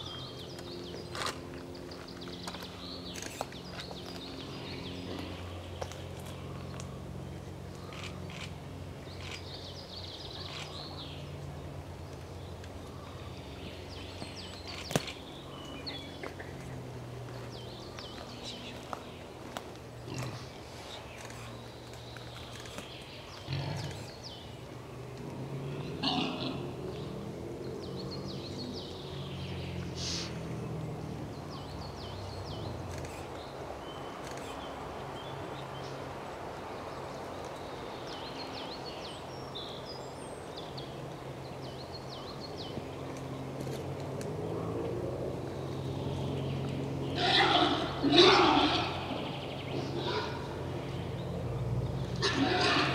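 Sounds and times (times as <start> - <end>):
small birds chirping: 0.0 - 44.6, 45.3 - 52.9
wild boar grunting: 23.4 - 24.2, 25.2 - 27.2, 47.1 - 50.8, 52.2 - 52.9
boar squealing: 47.2 - 50.5, 52.2 - 52.9.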